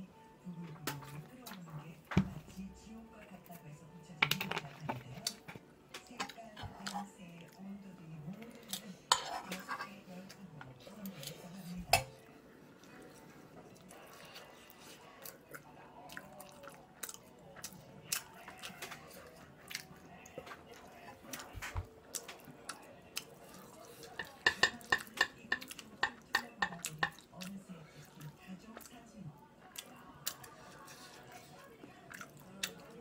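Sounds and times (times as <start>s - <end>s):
person chewing: 13.8s - 20.4s, 29.7s - 33.0s.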